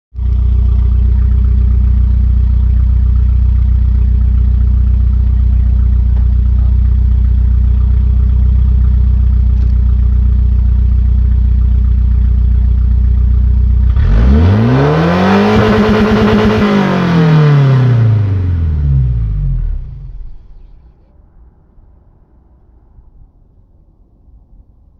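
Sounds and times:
loud car engine idling and revving: 0:00.2 - 0:20.8.

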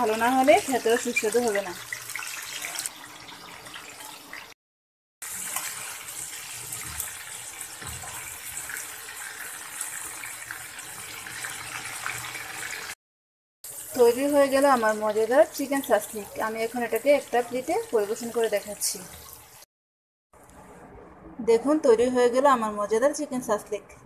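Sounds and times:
food sizzling in hot oil: 0:00.0 - 0:04.5, 0:05.2 - 0:13.0, 0:13.6 - 0:19.7.

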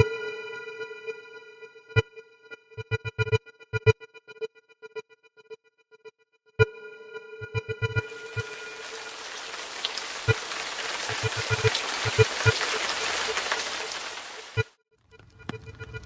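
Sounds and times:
synthesizer music with low beats: 0:01.8 - 0:05.0
crackling rushing fire: 0:08.0 - 0:16.0.

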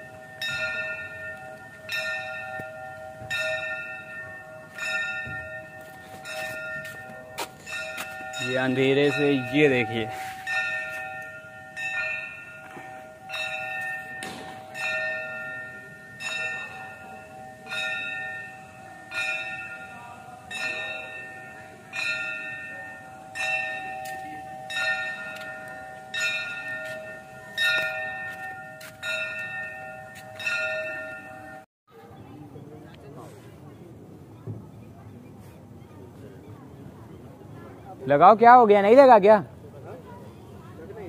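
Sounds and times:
metal bell ringing: 0:00.0 - 0:31.6.

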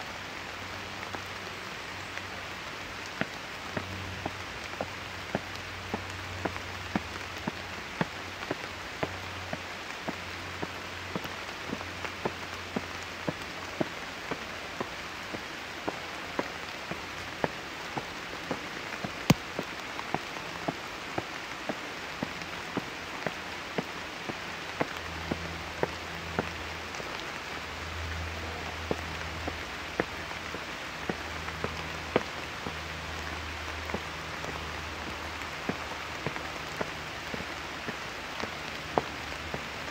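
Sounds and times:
large raindrops tapping: 0:00.0 - 0:39.9
steady rain: 0:00.0 - 0:39.9.

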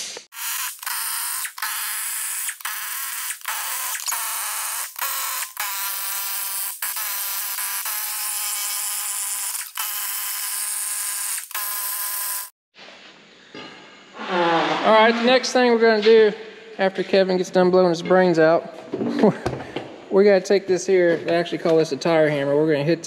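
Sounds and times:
pneumatic impact wrench: 0:00.0 - 0:12.5.

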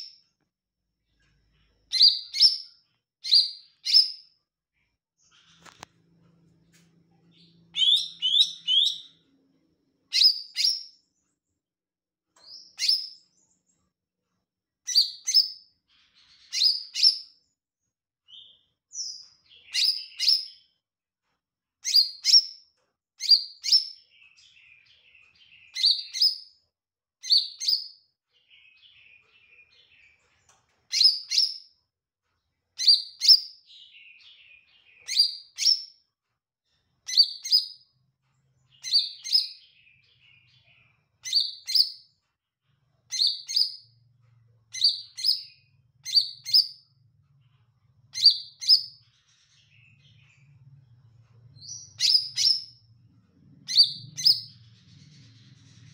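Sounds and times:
bird twittering chatter: 0:07.3 - 0:09.2, 0:53.6 - 0:55.9
bird singing sharp high notes: 0:07.4 - 0:09.2.

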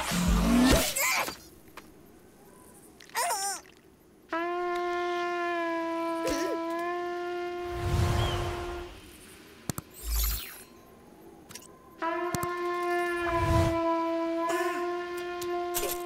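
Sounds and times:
long steady horn-like note: 0:04.3 - 0:09.0, 0:12.0 - 0:16.0.

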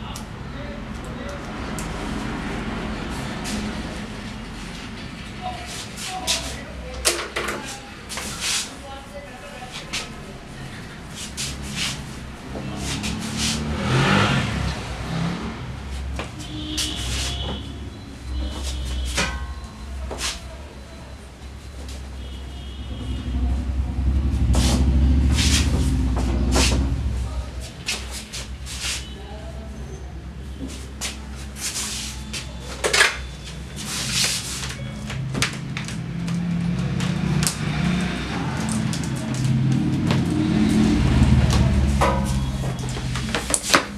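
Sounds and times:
vehicle engine passing by: 0:00.5 - 0:06.9, 0:10.3 - 0:18.5, 0:22.8 - 0:32.5, 0:33.8 - 0:43.9.

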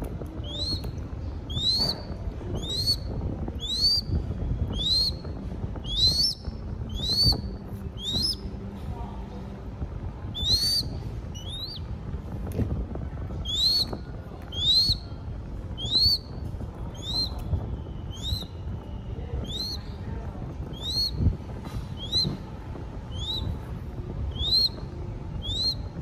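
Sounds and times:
bird chick begging calls: 0:00.4 - 0:00.9, 0:01.5 - 0:03.0, 0:03.6 - 0:04.1, 0:04.7 - 0:08.4, 0:10.4 - 0:11.8, 0:13.4 - 0:15.0, 0:15.8 - 0:16.3, 0:17.0 - 0:17.4, 0:18.1 - 0:18.5, 0:19.4 - 0:19.8, 0:20.7 - 0:21.2, 0:22.0 - 0:22.3, 0:23.1 - 0:23.6, 0:24.3 - 0:24.8, 0:25.4 - 0:25.8.

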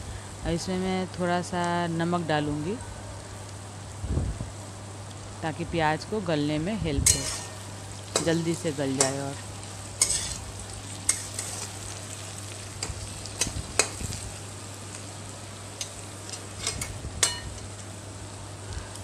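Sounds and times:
onions sizzling in oil: 0:00.0 - 0:19.0
metal spatula scraping pan: 0:07.1 - 0:07.6, 0:10.0 - 0:10.4.

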